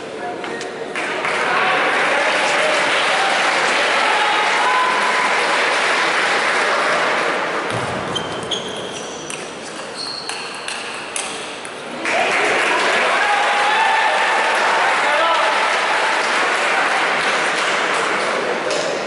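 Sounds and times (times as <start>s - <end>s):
crowd applause: 0.9s - 7.6s, 11.9s - 18.6s.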